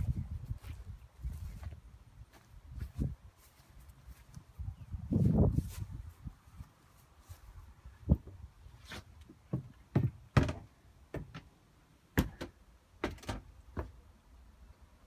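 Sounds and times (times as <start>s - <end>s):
knocks and thuds: 9.5s - 11.5s, 12.2s - 14.0s.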